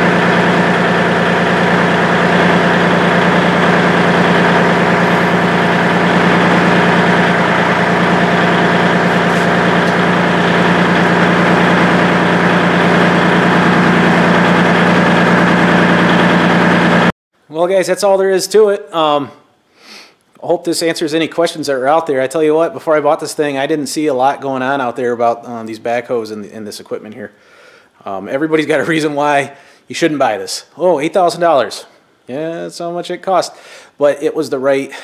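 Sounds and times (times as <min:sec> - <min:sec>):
tractor diesel engine idling: 0:00.0 - 0:17.1.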